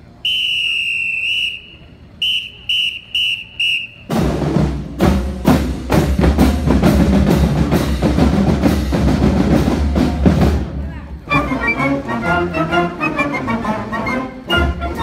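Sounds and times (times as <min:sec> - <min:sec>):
whistle blasts: 0:00.2 - 0:04.2
marching band playing: 0:01.2 - 0:15.0
drums hitting steady beat: 0:04.0 - 0:10.8.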